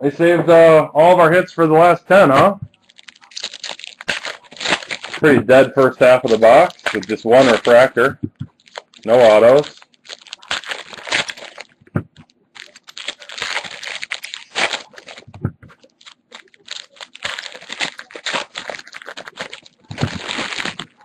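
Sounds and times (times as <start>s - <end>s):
foil wrappers crinkling: 2.4s - 21.0s.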